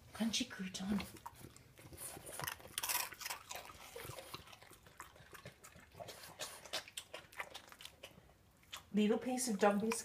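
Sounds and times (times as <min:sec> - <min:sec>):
dog crunching a crouton: 0:00.9 - 0:10.0.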